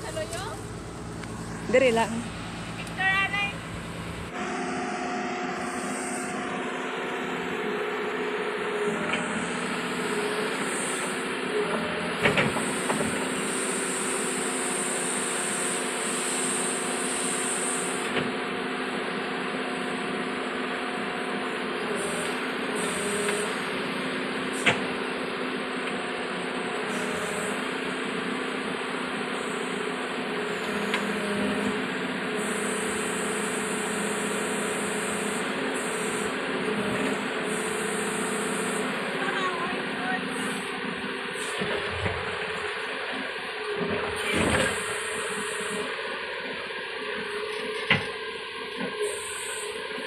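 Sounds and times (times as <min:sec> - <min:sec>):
excavator diesel engine running: 0:00.0 - 0:50.0
high hydraulic hiss: 0:49.0 - 0:49.8.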